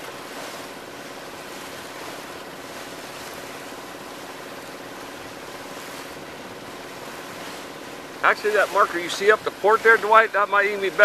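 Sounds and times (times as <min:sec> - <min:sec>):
water rushing past boat: 0:00.0 - 0:11.0.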